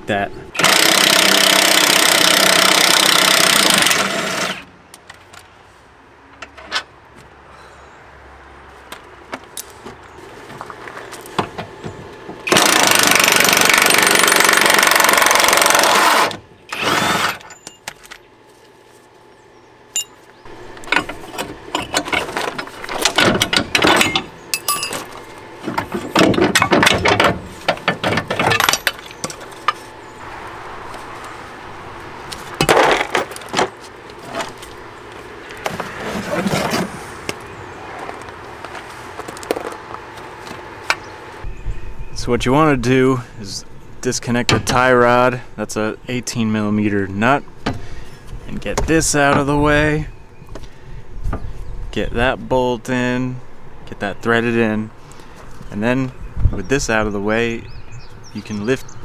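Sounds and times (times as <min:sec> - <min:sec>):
metal tools clanking: 0:17.3 - 0:18.2, 0:19.9 - 0:30.0, 0:32.6 - 0:34.6.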